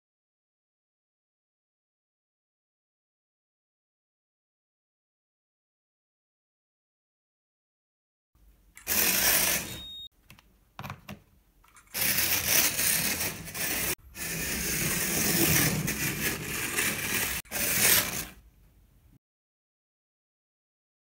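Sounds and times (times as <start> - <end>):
slot car motor whirring: 8.8 - 10.0, 11.9 - 18.4.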